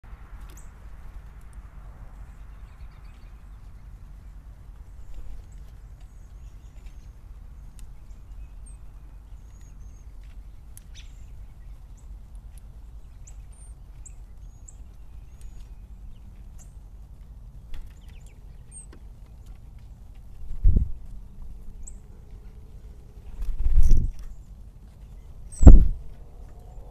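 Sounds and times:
low outdoor rumble: 0.0 - 26.9
high thin bird chirps: 23.4 - 24.4, 25.5 - 26.1.

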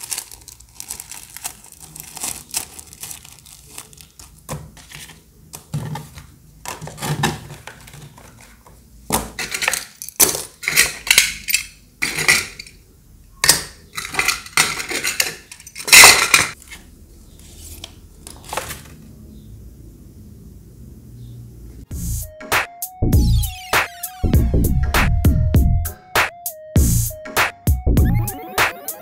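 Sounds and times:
paper cards shuffling: 0.0 - 8.7, 17.4 - 19.0
tin badges clinking: 9.4 - 12.8, 13.4 - 16.6.

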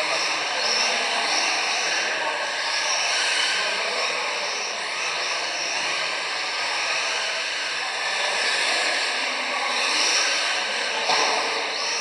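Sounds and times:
rc car motors whining: 0.0 - 12.0.

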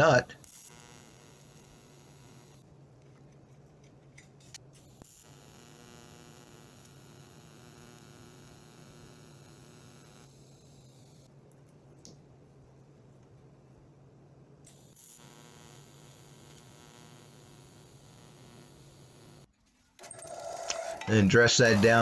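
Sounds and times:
welding arc electrical hum: 0.0 - 2.7, 4.2 - 12.1, 14.6 - 19.5, 21.0 - 22.0.

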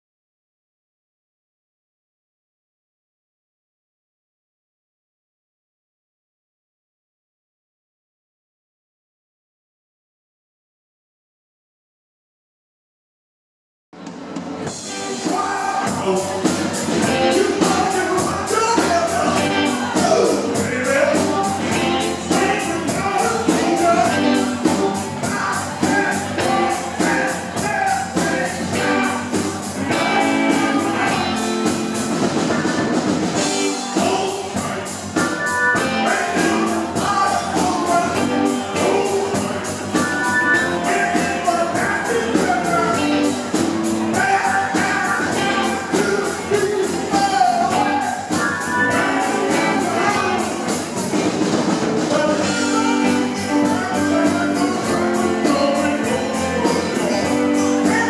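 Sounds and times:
steady drum beat: 14.0 - 58.0
live rock band playing: 14.1 - 58.0
person singing: 14.8 - 32.1, 33.4 - 51.2, 52.0 - 58.0.

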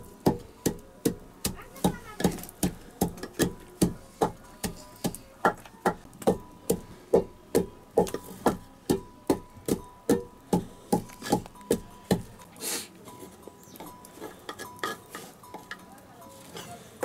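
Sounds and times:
pestle pounding in mortar: 0.0 - 12.4
rustling scrape: 12.5 - 17.0.

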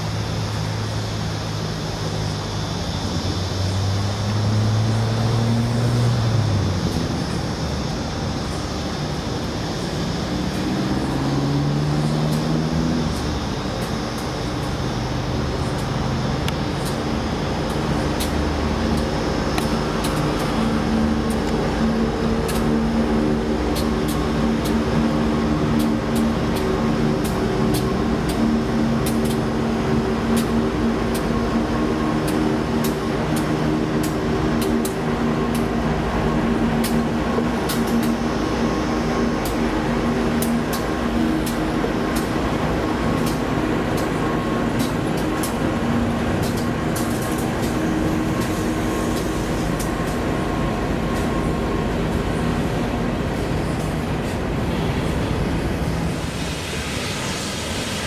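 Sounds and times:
diesel locomotive engine drone: 0.0 - 58.0
wheels clicking on rails: 12.0 - 58.0.

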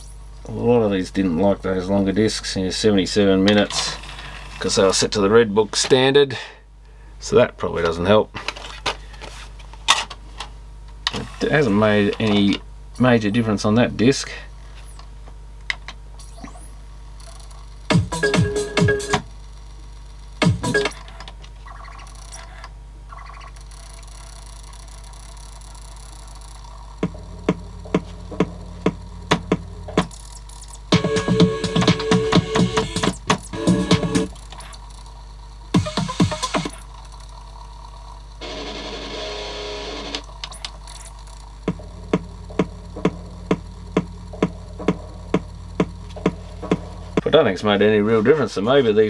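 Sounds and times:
faint steady hum: 0.0 - 49.0
cd player playing music: 17.9 - 19.3, 20.4 - 21.4, 24.1 - 34.9, 35.7 - 37.4, 38.4 - 47.4.

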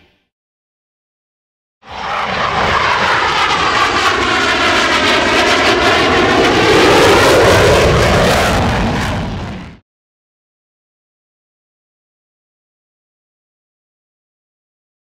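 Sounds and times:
propeller airplane flying past: 1.8 - 9.3.

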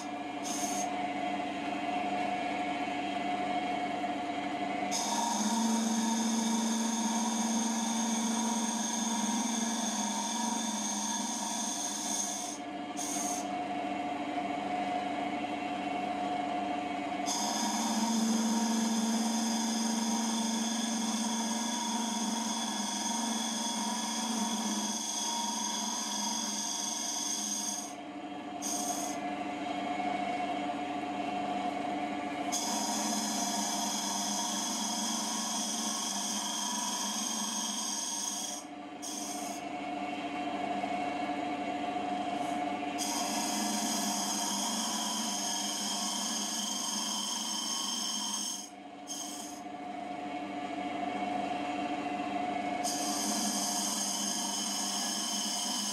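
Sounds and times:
wood lathe humming: 0.0 - 0.9, 4.9 - 13.5, 17.3 - 28.0, 28.6 - 29.2, 32.5 - 39.6, 43.0 - 49.6, 52.8 - 55.9
cutter scraping wooden bowl: 17.3 - 27.9.

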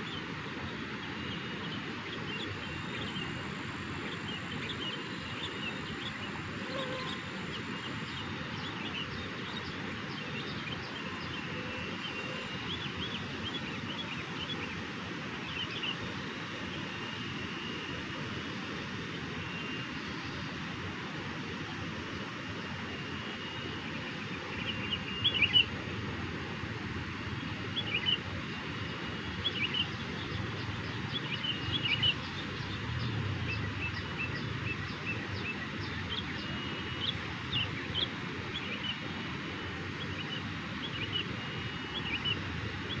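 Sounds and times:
bird chirping: 23.2 - 25.7, 27.4 - 28.2, 28.8 - 39.2, 39.9 - 43.0.

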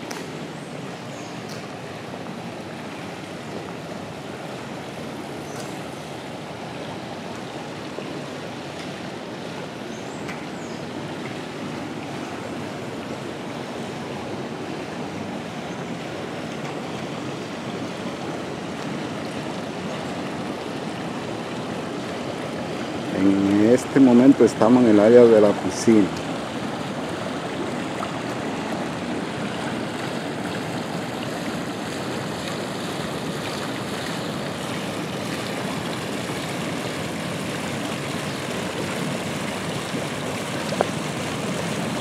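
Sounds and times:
water pouring into pool: 25.5 - 42.0.

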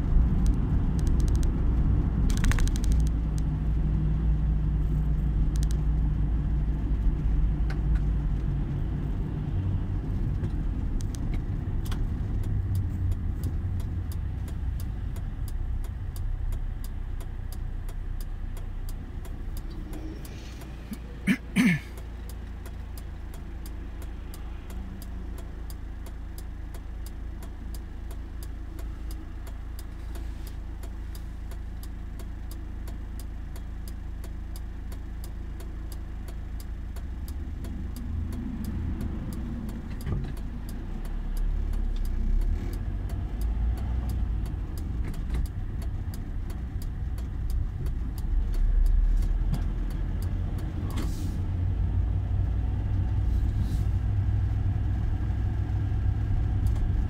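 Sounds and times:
car road and engine noise: 0.0 - 57.0
steady ticking: 10.6 - 50.8.

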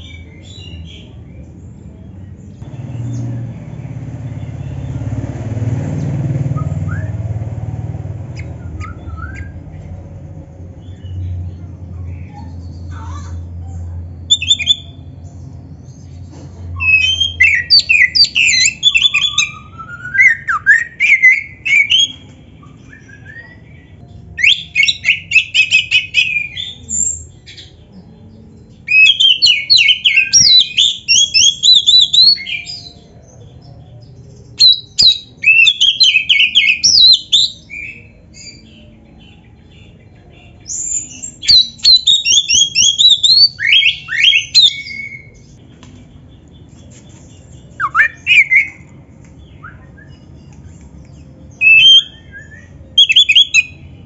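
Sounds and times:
bird singing whistles and chatter: 8.3 - 9.7, 14.3 - 15.2, 16.0 - 27.7, 28.8 - 33.8, 34.4 - 45.6, 46.5 - 54.0.

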